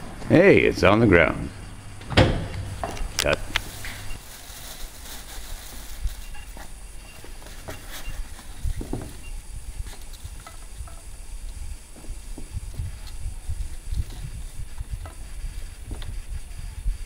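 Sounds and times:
plastic bag rustling: 2.7s - 10.4s
wind buffeting microphone: 8.0s - 17.0s.

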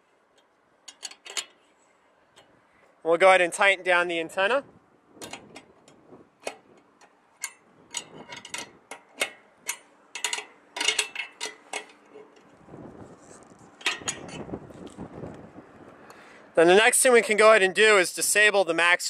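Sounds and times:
soft handling rustle: 11.9s - 13.8s.

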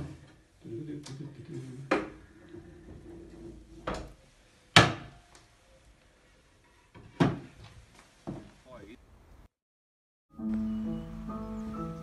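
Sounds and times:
wooden knocks and thuds: 6.9s - 8.6s.

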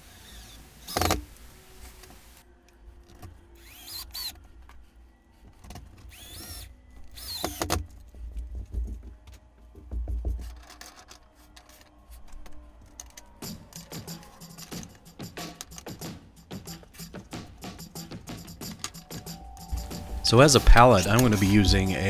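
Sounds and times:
cordless drill driving screws: 3.6s - 4.3s, 6.1s - 7.8s.

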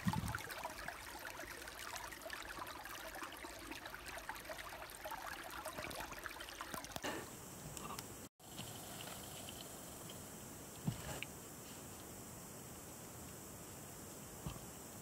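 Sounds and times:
brook trickling over rocks: 0.0s - 7.1s.

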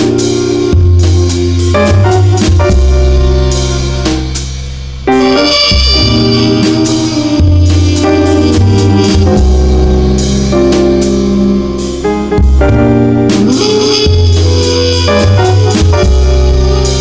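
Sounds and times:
deep bass notes: 0.0s - 17.0s
drums: 0.0s - 17.0s
trumpet playing mellow tune: 0.0s - 17.0s.

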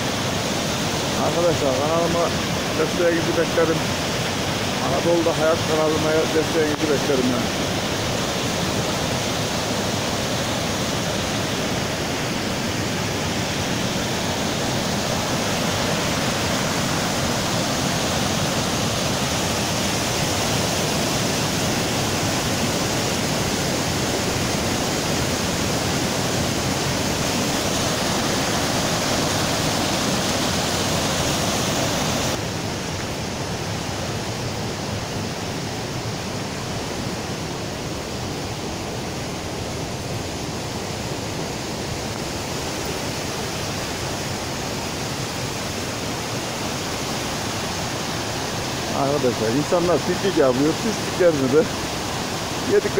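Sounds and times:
stream rushing over rocks: 0.0s - 52.9s.

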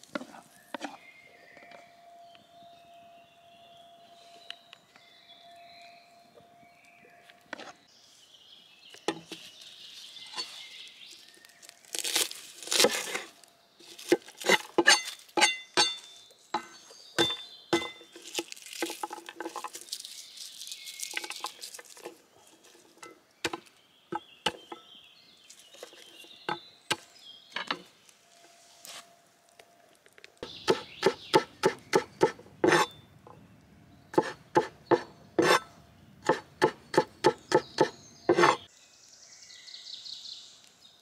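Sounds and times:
dry garlic skins rustling: 8.9s - 23.8s, 25.4s - 26.4s, 27.9s - 30.6s.

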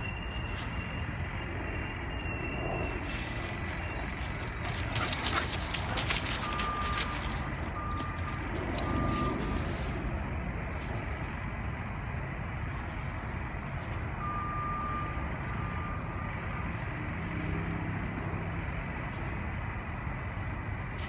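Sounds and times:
footsteps crunching dry leaves: 3.0s - 11.4s.

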